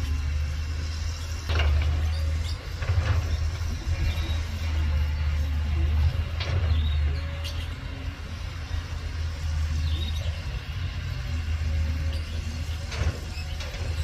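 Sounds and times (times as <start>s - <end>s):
excavator diesel engine drone: 0.0s - 14.0s.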